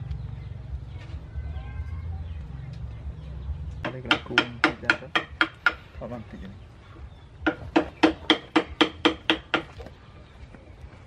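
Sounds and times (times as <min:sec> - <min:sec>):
mallet striking carving chisel: 0:03.8 - 0:05.8, 0:07.4 - 0:09.8.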